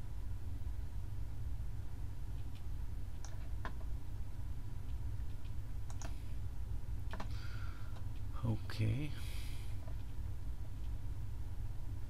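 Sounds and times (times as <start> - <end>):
steady low hum: 0.0 - 12.0
computer mouse clicks: 2.3 - 3.9, 4.8 - 6.2, 7.1 - 7.3.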